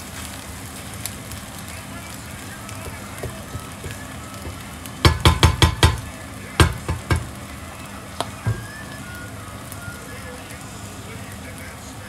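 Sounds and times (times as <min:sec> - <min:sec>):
mushrooms sizzling in a pan: 0:00.0 - 0:12.0
utensil clacking against pan: 0:02.8 - 0:07.4, 0:08.2 - 0:08.7.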